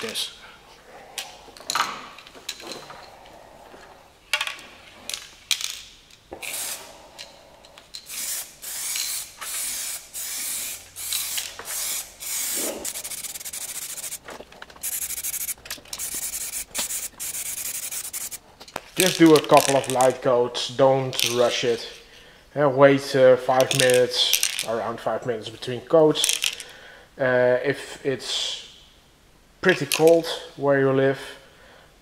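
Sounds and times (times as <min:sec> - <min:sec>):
aerosol spray can hissing: 0:06.4 - 0:06.9, 0:08.1 - 0:14.2, 0:14.8 - 0:18.4.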